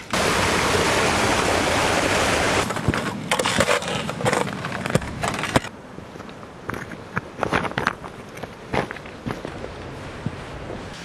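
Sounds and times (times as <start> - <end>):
boots crunching over snow and stones: 6.1 - 10.7.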